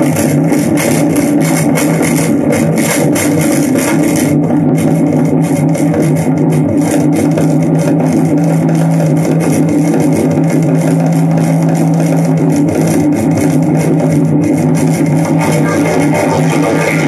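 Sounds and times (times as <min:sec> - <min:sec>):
electronic low drone: 0:00.0 - 0:17.0.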